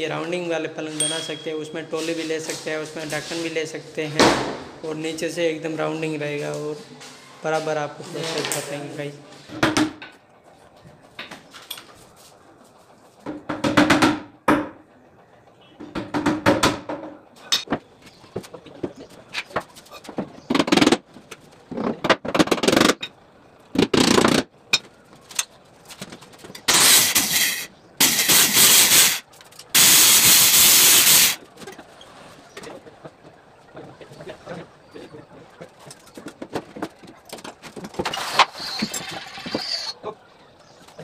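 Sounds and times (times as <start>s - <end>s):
power tool cutting wood: 26.7s - 29.2s, 29.8s - 31.4s.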